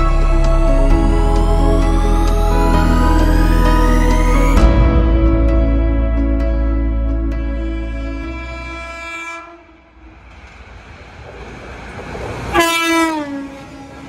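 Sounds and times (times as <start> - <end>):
background music: 0.0 - 9.6
electric locomotive rumble: 0.0 - 14.0
train horn blast: 7.3 - 10.1, 12.5 - 14.0
rush of train passing: 8.6 - 14.0.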